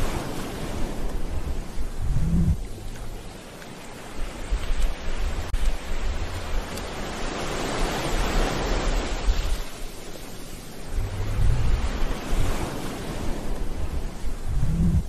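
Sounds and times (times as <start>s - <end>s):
ocean surf breaking: 0.0s - 15.0s
low rumble: 1.0s - 3.2s, 10.8s - 12.6s, 13.4s - 15.0s.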